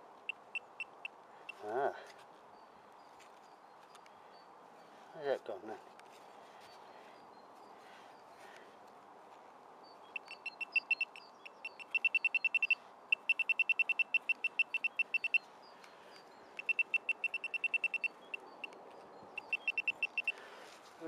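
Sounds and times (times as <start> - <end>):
pinpointer probe beeping: 0.3 - 1.6, 10.2 - 15.4, 16.6 - 18.8, 19.4 - 20.3.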